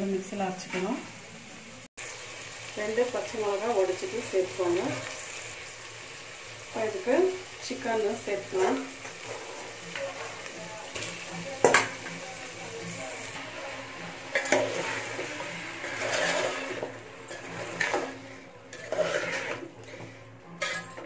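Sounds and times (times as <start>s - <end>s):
food sizzling in a pot: 0.0s - 21.0s
spoon scraping a pot: 14.3s - 21.0s.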